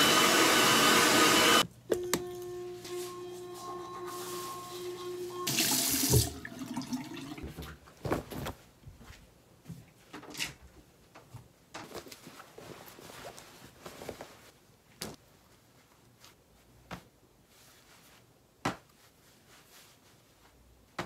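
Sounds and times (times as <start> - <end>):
clothes rustling: 7.4 - 10.2, 11.1 - 21.0.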